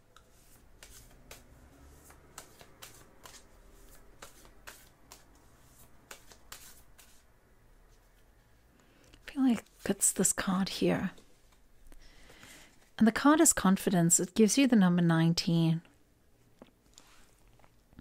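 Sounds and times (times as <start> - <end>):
cards being shuffled: 0.2 - 7.3.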